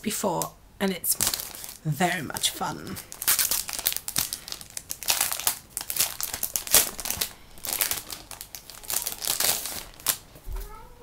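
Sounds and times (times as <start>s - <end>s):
plastic wrapping crinkling: 1.1s - 10.6s.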